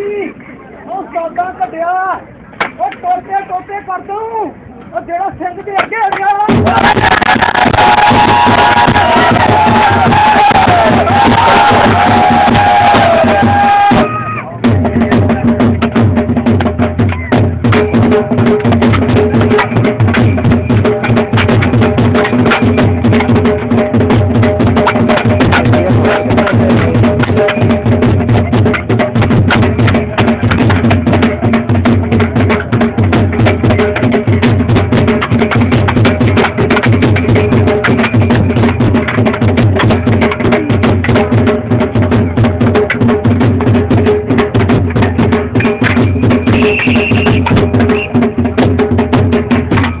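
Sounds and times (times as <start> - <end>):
rapid drumming: 5.4 - 50.0.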